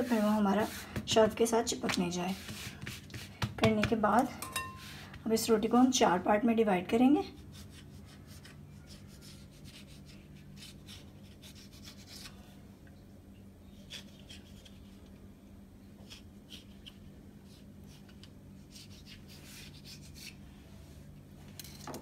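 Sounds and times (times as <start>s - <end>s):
knife scratching through dough: 0.0s - 3.4s, 7.3s - 12.4s, 13.7s - 15.1s, 16.0s - 20.4s
steady low hum: 0.0s - 22.0s.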